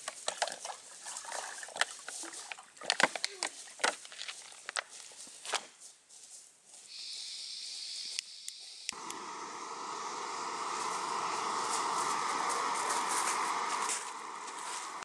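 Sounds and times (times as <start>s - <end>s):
gas hissing from burner: 6.9s - 15.0s
igniter clicks: 8.1s - 9.3s
gas burner roaring: 8.5s - 15.0s.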